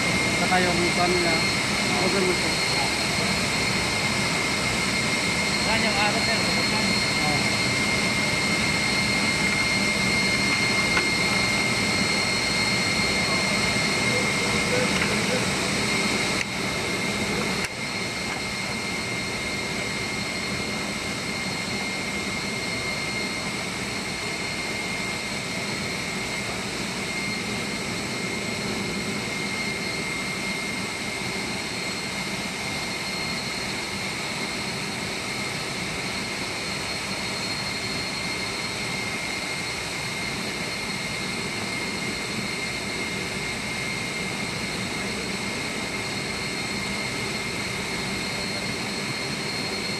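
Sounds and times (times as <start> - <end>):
machinery drone with whine: 0.0 - 49.9.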